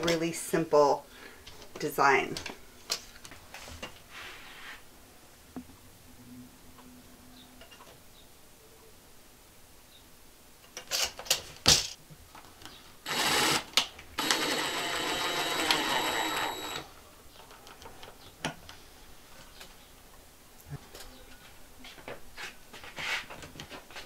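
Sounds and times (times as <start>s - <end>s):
impact driver rattling: 13.1s - 16.8s.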